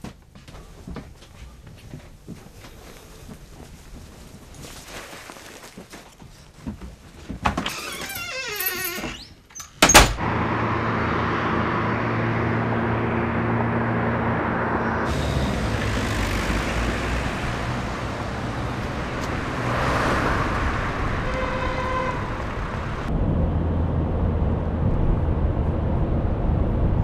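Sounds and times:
street traffic: 7.6 - 27.0
car engine rumble inside cabin: 10.2 - 27.0
car passing: 10.2 - 27.0
car horn: 19.5 - 23.1.

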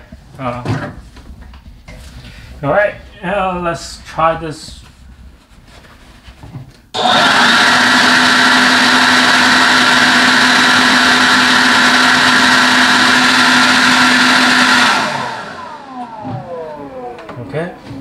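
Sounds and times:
leaf blower running: 7.0 - 18.0.

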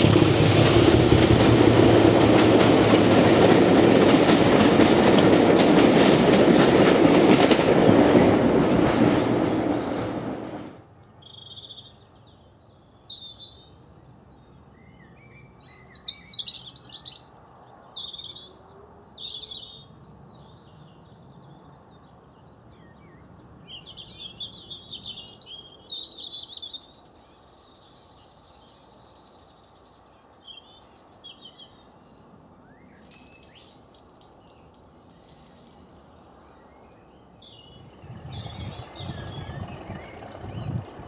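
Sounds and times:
diesel locomotive rumble: 0.0 - 10.8, 37.8 - 41.0
birds chirping and singing: 14.8 - 41.0.

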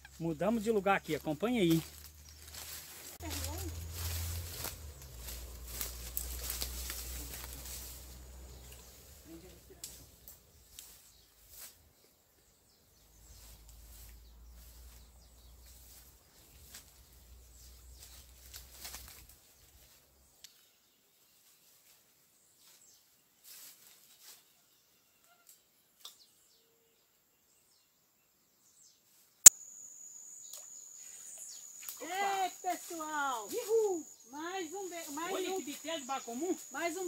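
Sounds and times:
rustling in grass: 0.0 - 20.1, 21.3 - 24.5, 31.0 - 37.0.

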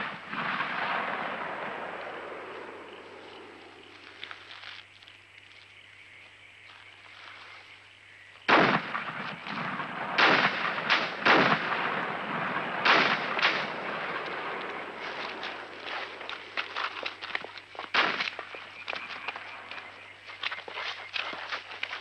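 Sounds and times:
gunshots: 0.0 - 3.1, 8.5 - 16.3, 17.9 - 18.5.

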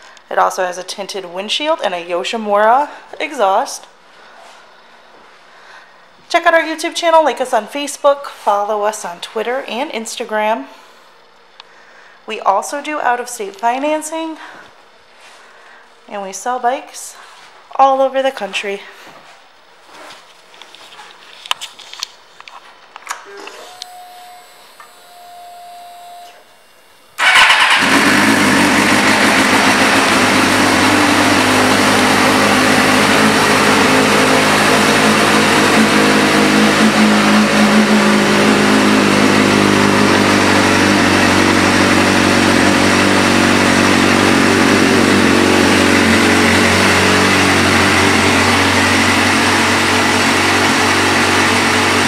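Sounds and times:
faint hum: 0.0 - 27.3
motorcycle engine starting and idling: 27.2 - 52.0.

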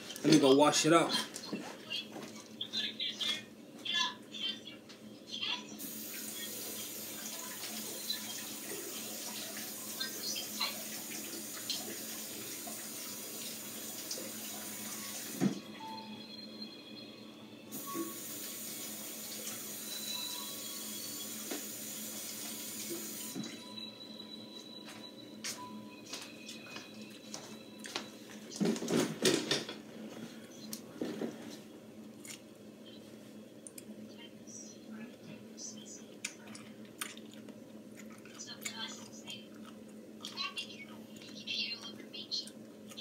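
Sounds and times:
tap water running into sink: 5.8 - 15.6, 18.0 - 19.9, 21.2 - 23.5.

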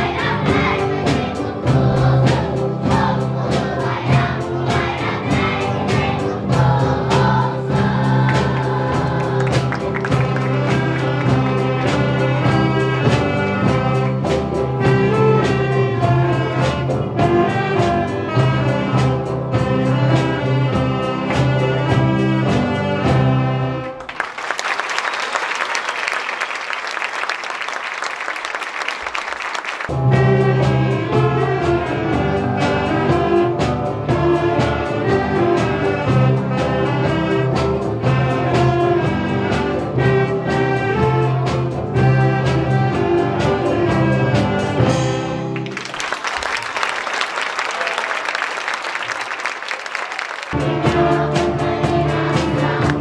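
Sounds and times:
drum kit beat: 0.0 - 23.4, 29.9 - 45.7, 50.5 - 53.0
wind band playing: 0.0 - 53.0
drum beat: 0.2 - 15.2.

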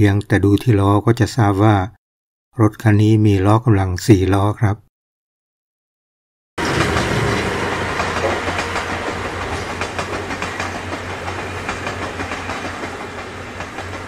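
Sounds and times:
steam train passing: 6.6 - 14.0
wheels clattering over rails: 6.6 - 14.0.

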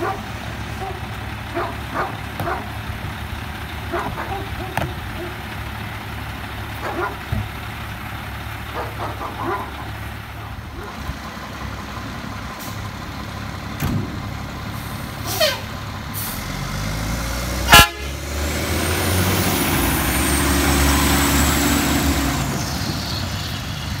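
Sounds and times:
diesel engine running: 0.0 - 24.0
truck horn toot: 15.2 - 15.7, 17.6 - 18.4.

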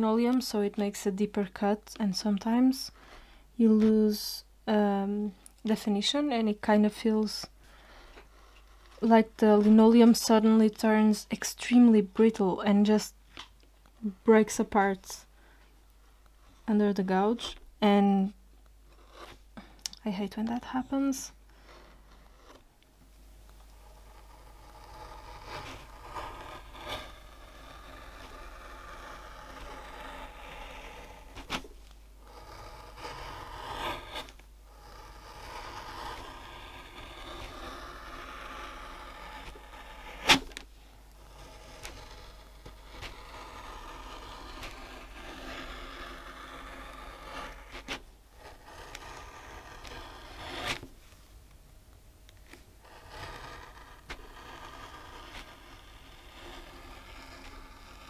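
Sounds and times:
gouge scraping linoleum: 7.9 - 10.4, 18.9 - 19.4, 20.5 - 22.7, 23.7 - 51.2, 52.4 - 58.0.

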